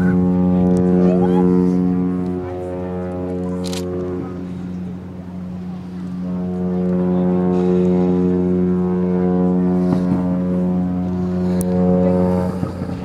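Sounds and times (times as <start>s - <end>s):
deep ship horn blast: 0.0s - 13.0s.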